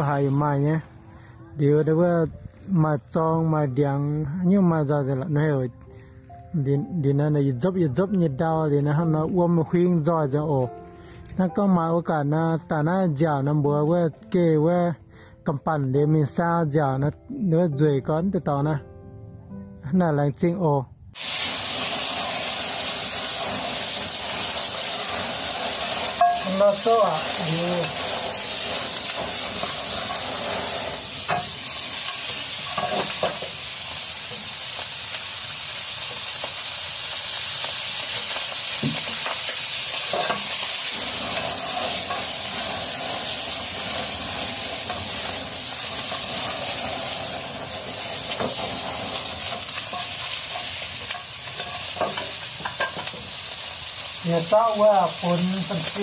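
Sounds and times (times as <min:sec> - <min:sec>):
food sizzling in a wok: 0:00.0 - 0:01.3, 0:21.2 - 0:56.0.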